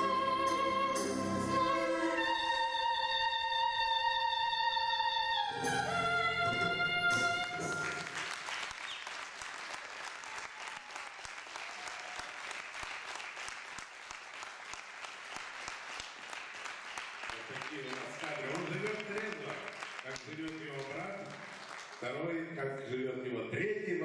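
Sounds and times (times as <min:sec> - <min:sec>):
backing music: 0:00.0 - 0:08.2
audience applauding: 0:07.5 - 0:22.2.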